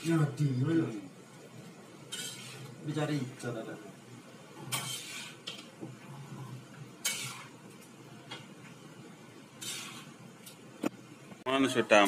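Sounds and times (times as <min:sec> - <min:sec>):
metal spatula scraping wok: 0:02.0 - 0:03.3, 0:04.6 - 0:05.7, 0:07.0 - 0:07.6, 0:09.6 - 0:10.2.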